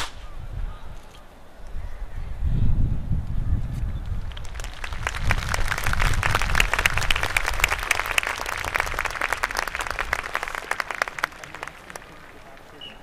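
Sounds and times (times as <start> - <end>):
crowd applauding: 4.2 - 13.0.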